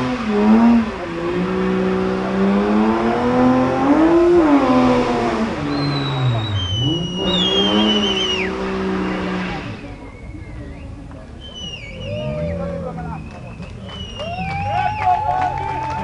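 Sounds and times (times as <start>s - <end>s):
car engine revving high: 0.0s - 13.3s
tyre squeal: 5.7s - 9.2s, 9.9s - 13.3s.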